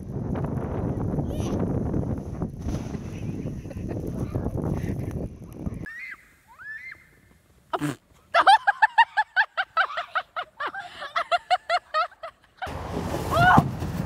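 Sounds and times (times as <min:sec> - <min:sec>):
person laughing hard: 0:07.8 - 0:12.7.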